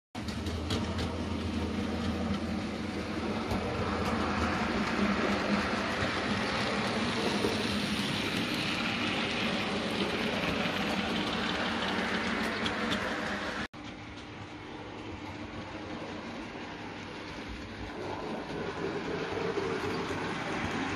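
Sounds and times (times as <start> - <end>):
wheels rumbling on rails: 0.1 - 20.9
model train motor humming: 0.3 - 13.7.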